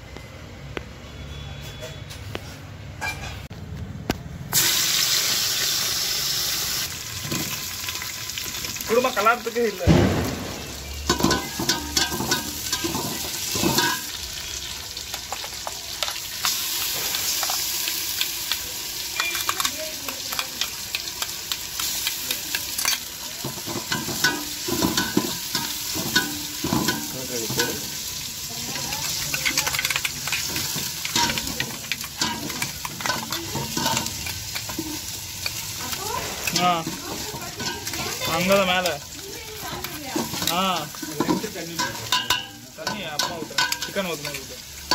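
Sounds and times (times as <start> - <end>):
onions sizzling in hot oil: 4.5 - 44.9
metal ladle scraping and clinking: 11.1 - 14.2, 29.0 - 38.6, 39.7 - 44.9.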